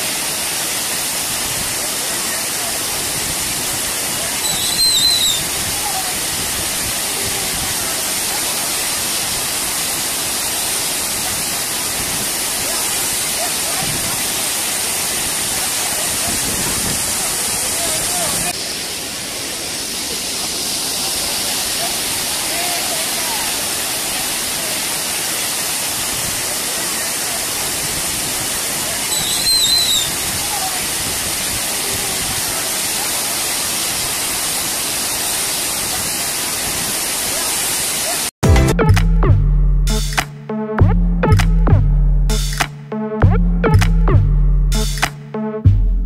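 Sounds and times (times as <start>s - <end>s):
waterfall rushing: 0.0s - 38.8s
high wavering whistle-like tone: 4.4s - 5.4s, 29.1s - 30.1s.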